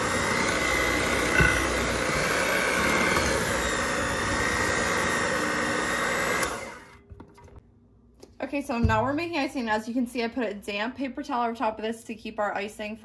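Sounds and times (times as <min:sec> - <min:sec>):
electric hand mixer whipping icing: 0:00.0 - 0:07.0.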